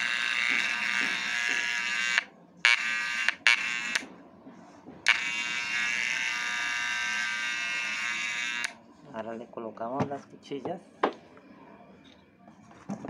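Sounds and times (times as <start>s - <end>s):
hair clipper buzzing: 0.0s - 4.0s, 5.1s - 8.8s.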